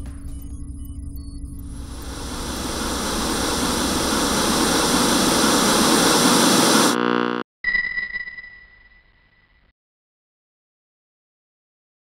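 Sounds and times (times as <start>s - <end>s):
white-noise static hiss: 1.8s - 7.4s
high ringing tone: 1.8s - 9.6s
short buzz: 1.9s - 7.4s.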